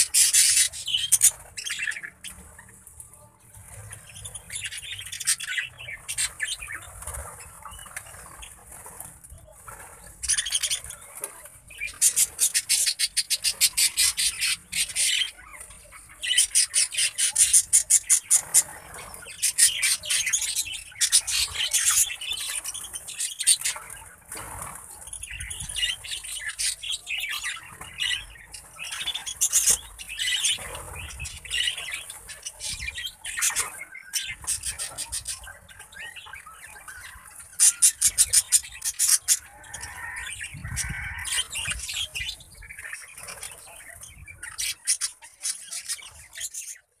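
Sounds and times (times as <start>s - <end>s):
budgerigars chirping: 0.0s - 2.7s, 11.7s - 24.1s, 25.0s - 46.9s.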